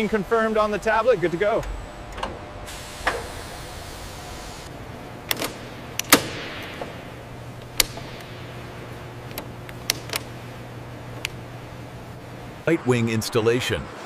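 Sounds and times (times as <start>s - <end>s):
low machine hum: 0.0s - 14.0s
hiss: 2.7s - 4.7s.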